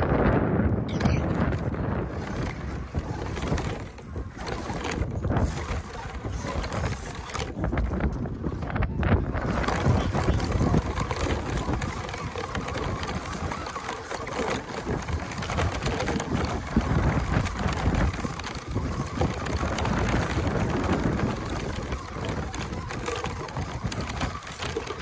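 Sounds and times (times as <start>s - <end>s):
wind on microphone: 0.0s - 25.0s
toy truck crunching over gravel: 0.9s - 25.0s.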